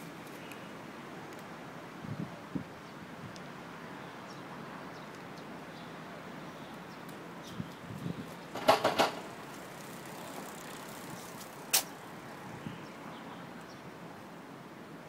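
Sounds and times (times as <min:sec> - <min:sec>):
outdoor background noise: 0:00.0 - 0:15.0
clicks and knocks: 0:08.6 - 0:09.3.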